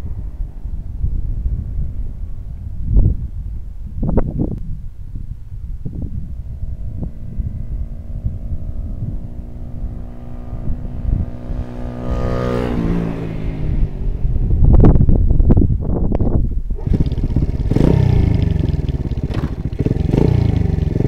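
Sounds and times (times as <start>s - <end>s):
motorcycle engine approaching: 5.9s - 21.0s.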